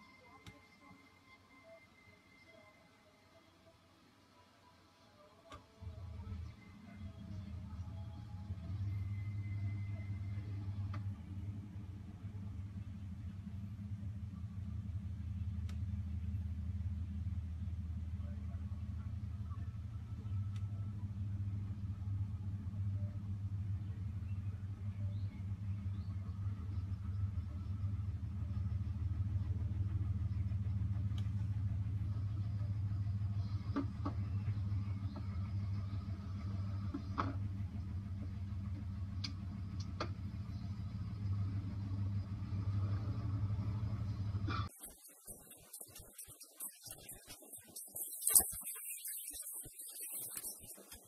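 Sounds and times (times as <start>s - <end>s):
car driving rumble: 5.8s - 51.0s
faint tick: 15.6s - 15.8s.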